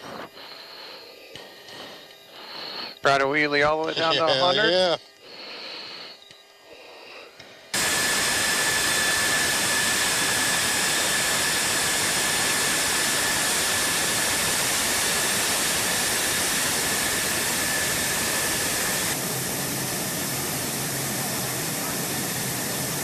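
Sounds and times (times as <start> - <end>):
jet engine idling: 7.7 - 23.0.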